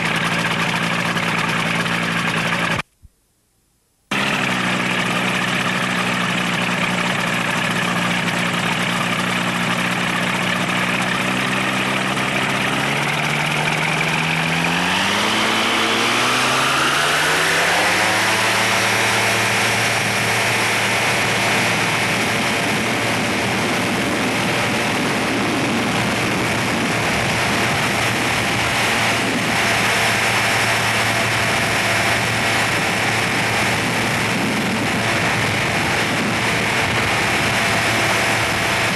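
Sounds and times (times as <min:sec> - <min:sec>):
light aircraft engine and propeller: 0:00.0 - 0:02.9, 0:04.1 - 0:38.9
wind noise: 0:14.1 - 0:38.9.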